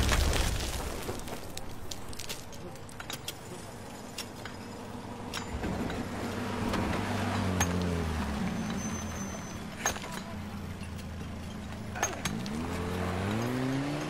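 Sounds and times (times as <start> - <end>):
vehicle engine passing by: 6.0 - 9.7, 12.3 - 14.0.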